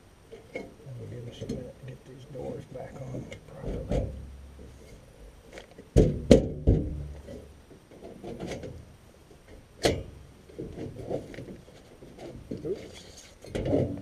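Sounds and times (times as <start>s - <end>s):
metal panels rubbing and scraping: 2.4s - 14.0s
knocks on sheet metal: 6.0s - 7.1s.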